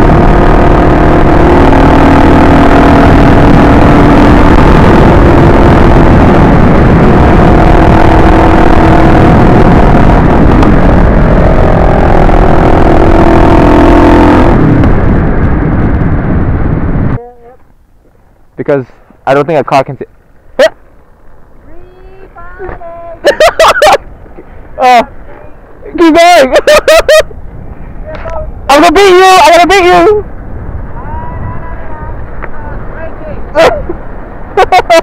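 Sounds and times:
motorcycle engine cruising: 0.0s - 18.5s
wind rush on microphone: 0.0s - 35.0s.

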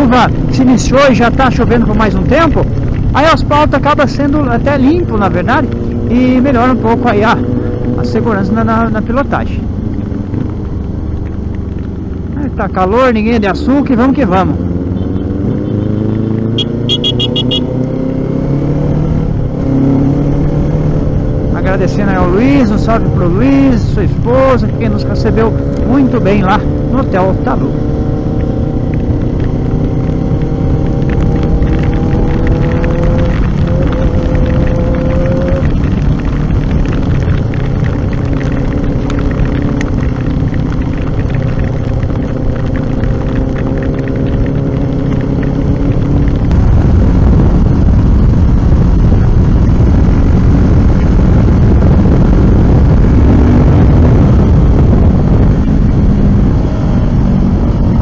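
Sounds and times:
motorcycle engine running: 0.0s - 58.0s
wind rush: 14.4s - 58.0s
tyres hissing on wet asphalt: 28.8s - 46.6s.

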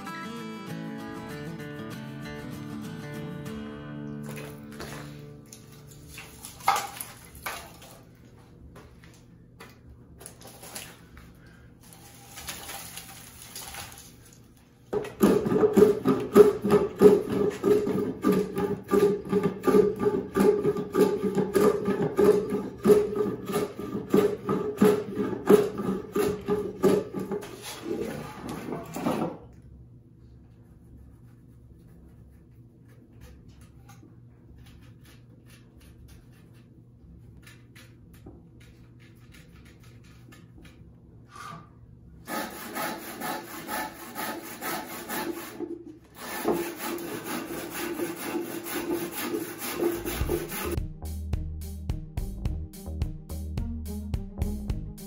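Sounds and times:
hand tool scraping wood: 15.2s - 29.2s, 42.3s - 50.8s.

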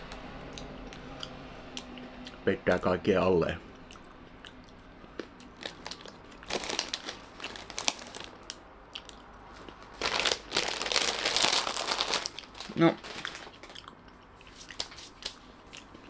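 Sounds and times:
crunchy snack chewing: 3.8s - 16.0s
snack bag crinkling: 5.2s - 15.5s.

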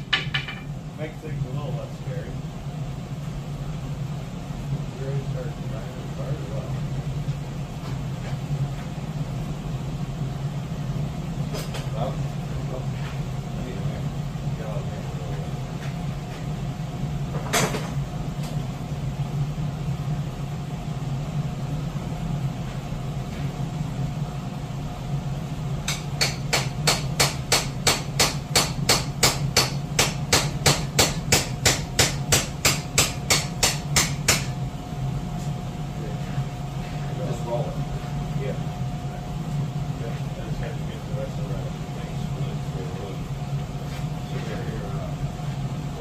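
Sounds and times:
sharp metal knock: 0.0s - 0.7s.

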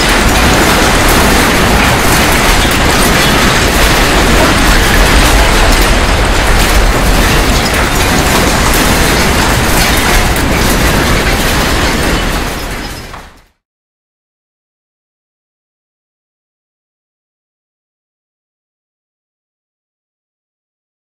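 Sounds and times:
earthquake rumble with rattling: 0.0s - 13.6s.

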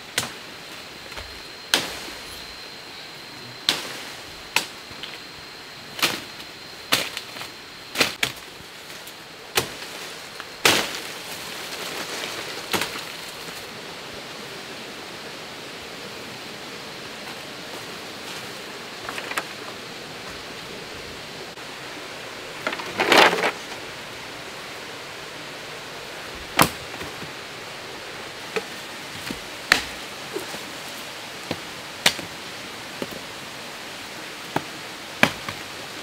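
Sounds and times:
jungle background hiss: 0.0s - 36.0s
machete chopping wood: 26.6s - 27.1s, 29.3s - 30.0s, 34.6s - 35.6s.

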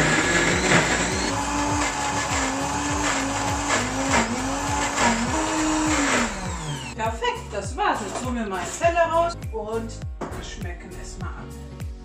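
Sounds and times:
blender running: 0.0s - 7.0s.

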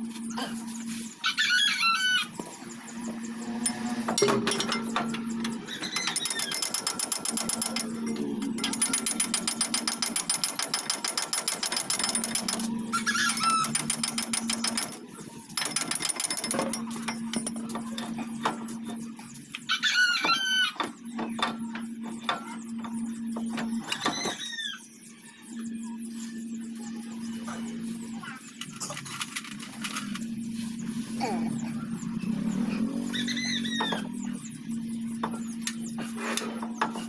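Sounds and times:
rooster crowing: 1.2s - 2.4s, 19.7s - 20.8s
fast mechanical clicks: 3.6s - 24.3s.

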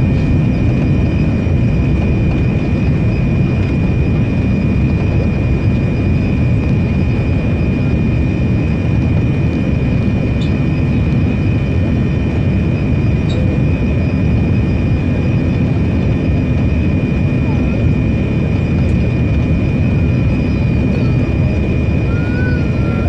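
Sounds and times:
high engine whine: 0.0s - 23.0s
jet engine and airflow rush: 0.0s - 23.0s.

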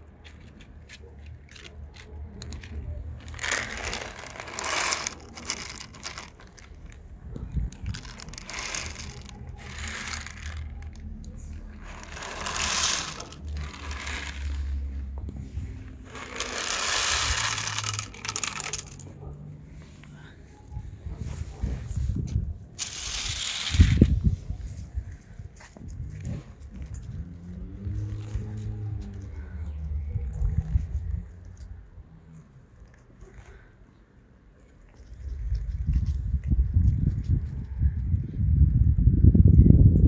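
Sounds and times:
dry kibble rattling onto plate: 2.4s - 14.9s, 16.0s - 19.0s, 22.8s - 24.1s.

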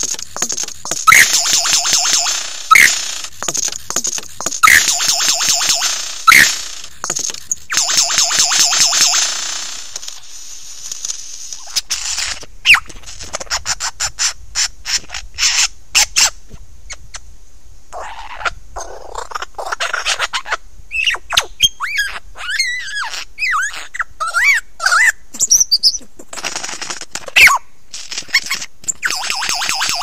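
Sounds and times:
lyrebird singing: 0.0s - 9.3s.

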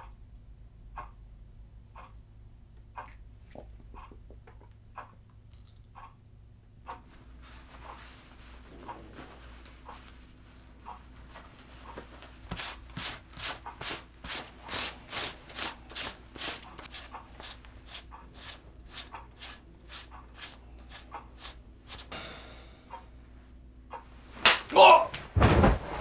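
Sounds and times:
lint roller rubbing: 11.7s - 22.1s.

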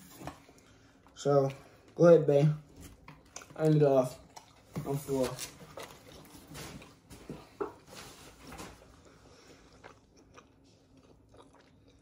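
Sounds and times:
faint chewing: 2.7s - 8.0s, 8.6s - 12.0s.

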